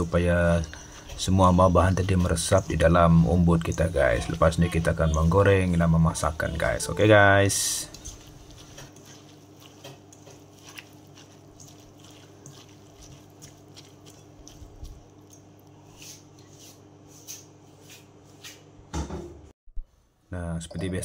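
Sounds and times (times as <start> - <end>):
low steady hum: 0.0 - 16.2
hand squishing banana stem: 1.2 - 16.2.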